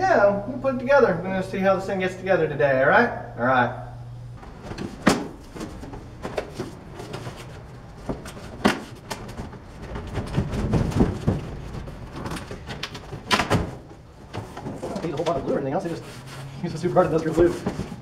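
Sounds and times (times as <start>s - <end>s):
cardboard rubbing and scraping: 4.4s - 13.3s, 14.2s - 18.0s.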